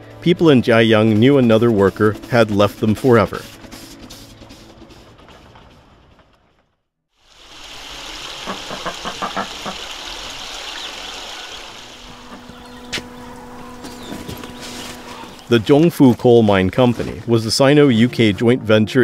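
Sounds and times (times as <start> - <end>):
running water hiss: 7.2 - 15.6
footsteps on paved path: 12.4 - 17.3.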